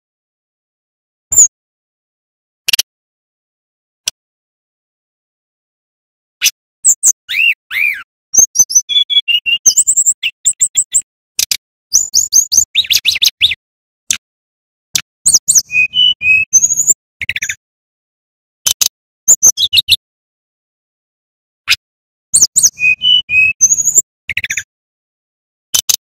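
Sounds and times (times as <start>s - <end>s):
bird singing chirps and whistles: 1.3s - 1.5s, 6.4s - 13.6s, 15.3s - 17.6s, 18.7s - 20.0s, 22.4s - 24.7s.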